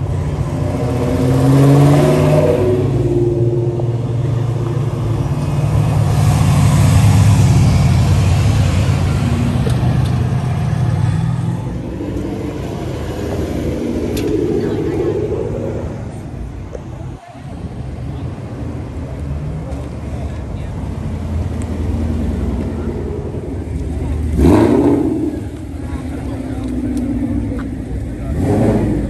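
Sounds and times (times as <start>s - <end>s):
car engine revving: 0.0s - 17.0s, 20.9s - 29.0s
cars driving past rumbling: 0.0s - 29.0s.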